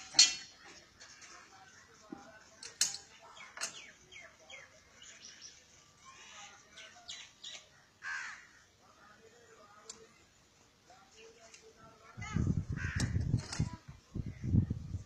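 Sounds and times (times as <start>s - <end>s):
birds calling: 3.2s - 9.2s
crows cawing: 8.0s - 8.7s, 12.8s - 13.2s.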